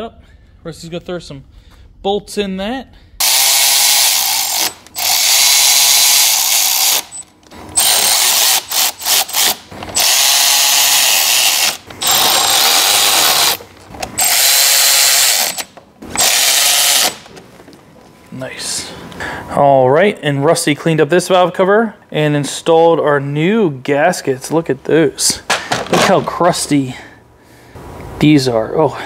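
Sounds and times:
power tool whirring: 3.2s - 17.3s.

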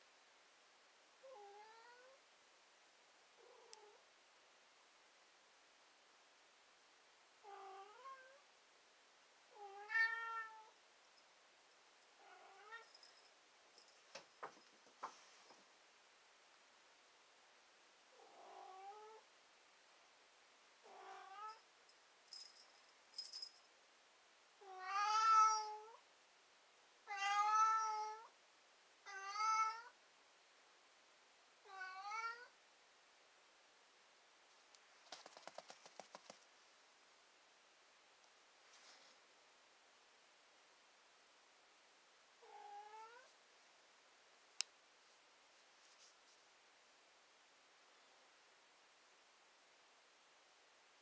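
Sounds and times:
cat meowing: 9.6s - 10.7s, 12.2s - 12.9s, 20.9s - 21.6s, 24.6s - 26.0s, 27.1s - 28.3s, 29.0s - 29.9s, 31.7s - 32.5s, 42.4s - 43.3s.

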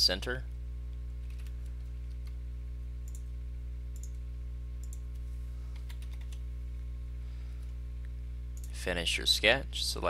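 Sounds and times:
steady electrical hum: 0.0s - 10.0s
computer mouse clicking: 1.2s - 2.4s, 3.0s - 3.3s, 4.0s - 4.2s, 4.8s - 6.4s.

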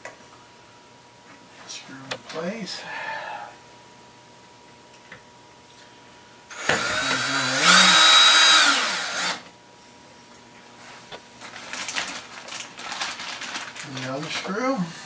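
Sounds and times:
power drill driving a screw: 6.5s - 9.4s.

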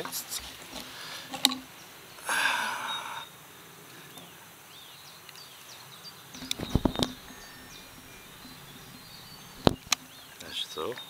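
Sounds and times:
birds chirping: 0.8s - 11.0s
knocks and clicks: 6.4s - 10.0s.

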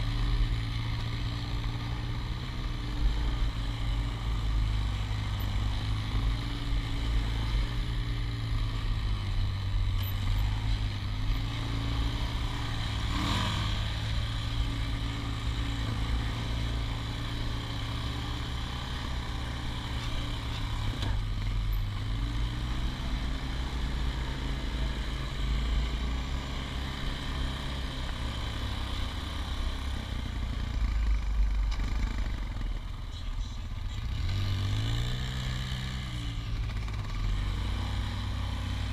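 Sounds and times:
atv engine running: 0.0s - 38.9s.

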